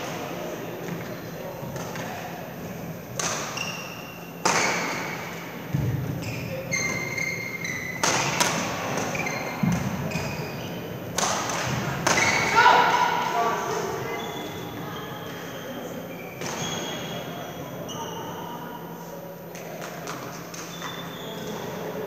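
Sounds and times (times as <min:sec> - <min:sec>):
rackets striking shuttlecock: 0:03.1 - 0:05.9, 0:07.9 - 0:10.3, 0:11.1 - 0:12.6
shoes squeaking on floor: 0:03.4 - 0:11.0, 0:12.1 - 0:12.8, 0:13.9 - 0:18.7, 0:20.3 - 0:22.0.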